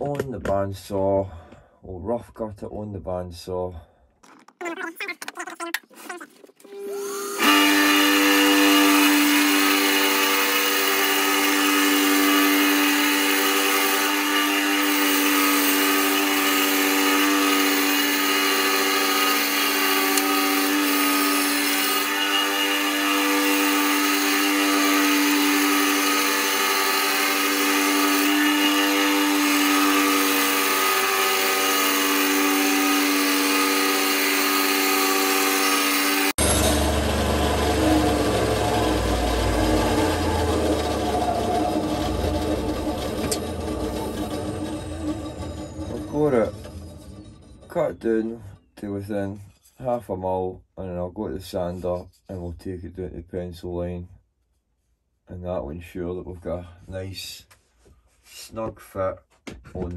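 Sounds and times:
bandsaw running: 6.7 - 47.8
bandsaw blade cutting wood: 6.7 - 47.9.

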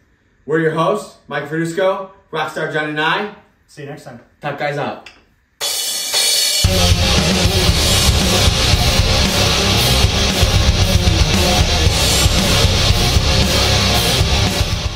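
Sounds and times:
loud rock music: 5.6 - 14.9.

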